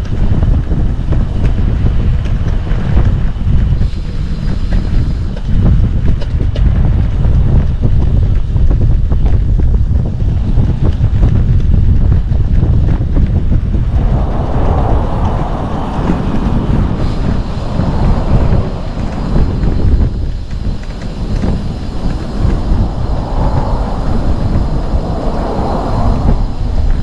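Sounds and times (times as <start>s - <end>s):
wind buffeting microphone: 0.0s - 27.0s
higher rushing hiss: 13.6s - 27.0s.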